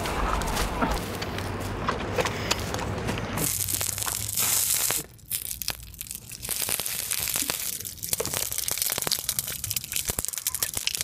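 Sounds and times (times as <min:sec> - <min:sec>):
embers crackling and hissing: 0:02.4 - 0:11.0
water pouring from plastic bottle: 0:03.4 - 0:11.0.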